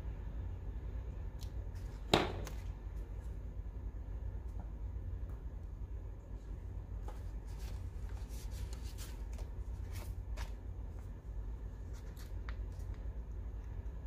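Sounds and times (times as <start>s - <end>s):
steady low hum: 0.0s - 14.0s
paper rustling: 7.0s - 11.2s, 11.8s - 13.1s.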